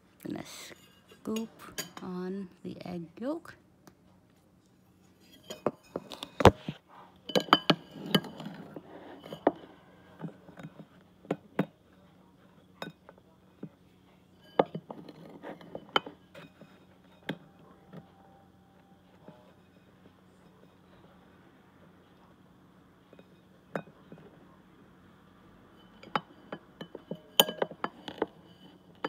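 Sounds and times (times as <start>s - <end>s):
spoon clinking against bowl: 7.3s - 9.6s, 14.4s - 17.5s, 25.8s - 29.0s.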